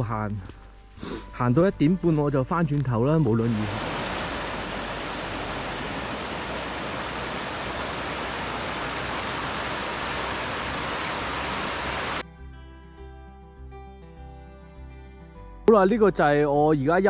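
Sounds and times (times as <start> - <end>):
background music: 0.0 - 3.8, 12.2 - 17.0
creek splashing over rocks: 3.4 - 12.2.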